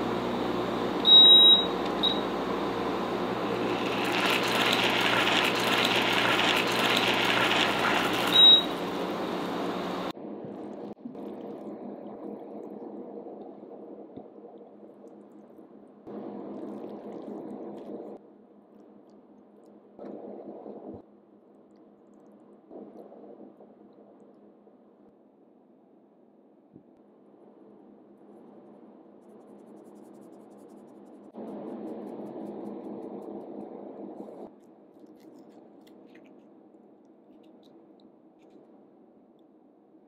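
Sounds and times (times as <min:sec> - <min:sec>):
hob hum: 0:00.0 - 0:18.2
induction hob beeping: 0:01.0 - 0:02.4, 0:07.9 - 0:09.2.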